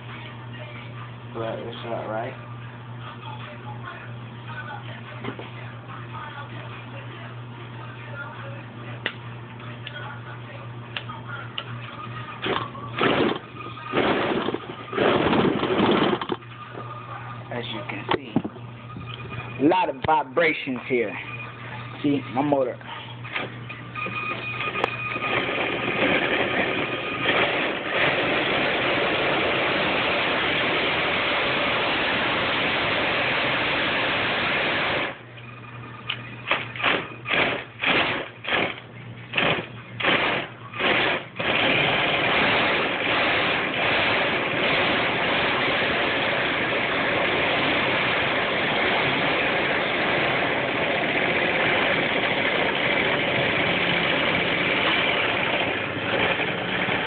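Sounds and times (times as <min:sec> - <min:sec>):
rollers vibrating: 0:12.1 - 0:57.0.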